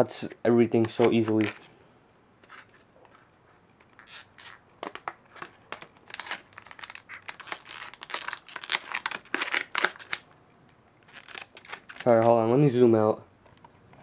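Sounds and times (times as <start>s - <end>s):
scissors cutting plastic: 0.8s - 1.6s, 11.1s - 12.3s.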